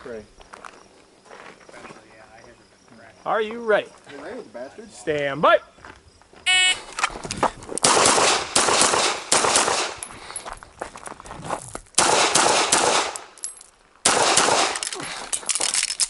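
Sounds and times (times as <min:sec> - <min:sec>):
pistol shots: 0:07.8 - 0:10.0, 0:12.0 - 0:13.3, 0:14.0 - 0:15.0.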